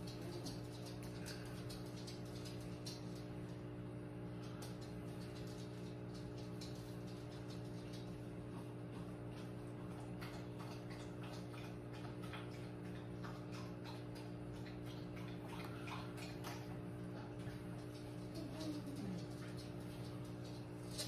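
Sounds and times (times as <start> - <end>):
light ticking and clicking: 0.0 - 3.7, 4.4 - 8.7
faint steady hum: 0.0 - 21.0.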